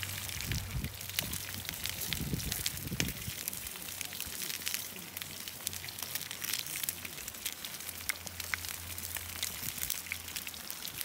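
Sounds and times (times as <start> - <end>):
campfire crackling: 0.0 - 11.0.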